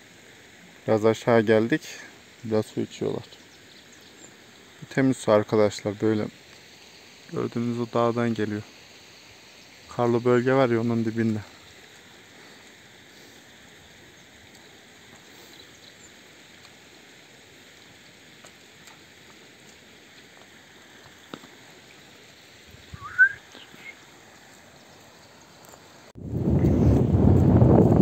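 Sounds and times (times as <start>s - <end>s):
stream trickling over stones: 0.0s - 26.1s
bird chirp: 22.8s - 25.5s.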